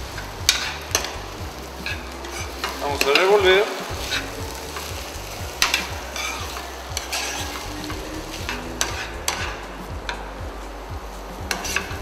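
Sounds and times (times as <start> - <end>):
sauce sizzling: 0.0 - 12.0
metal spatula scraping a pan: 0.2 - 9.7.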